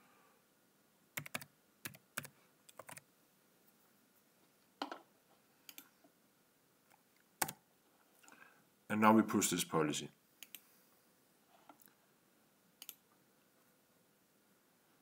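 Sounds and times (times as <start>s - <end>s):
computer keyboard typing: 1.2s - 3.0s, 7.4s - 7.6s.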